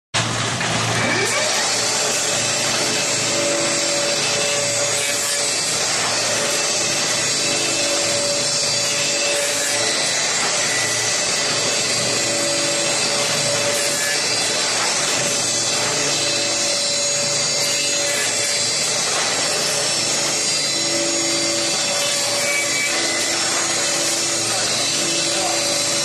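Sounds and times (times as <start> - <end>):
wood being cut: 0.2 - 26.0
woodworking machine motor running: 0.2 - 26.0.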